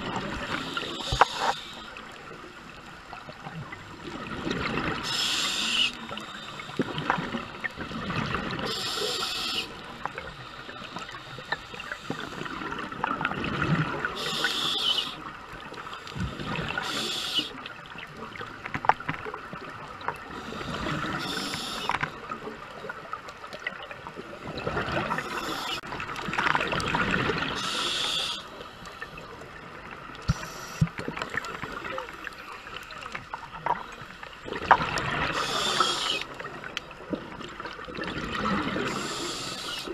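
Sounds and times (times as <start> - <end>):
bubbling and gurgling: 0.0 - 9.0, 9.6 - 14.4, 15.2 - 39.9
regulator breathing hisses: 0.5 - 2.0, 5.0 - 6.8, 8.7 - 9.8, 14.2 - 15.2, 16.4 - 17.6, 20.3 - 22.0, 25.2 - 25.8, 27.6 - 29.0, 30.3 - 31.0, 35.3 - 36.4, 38.8 - 39.9.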